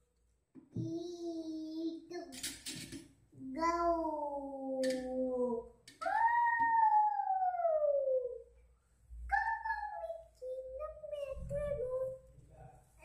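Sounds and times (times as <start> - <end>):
falling vocal wails: 4.2 - 8.4.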